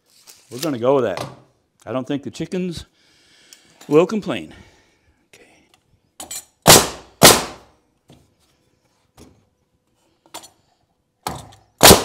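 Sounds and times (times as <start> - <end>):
nail gun firing: 6.6 - 7.7, 11.8 - 12.0.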